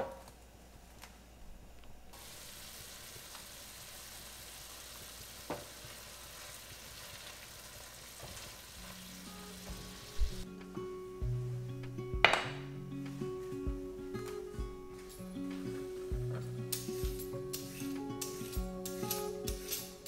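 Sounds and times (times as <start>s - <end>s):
food sizzling in a pan: 2.2s - 10.4s, 16.7s - 20.0s.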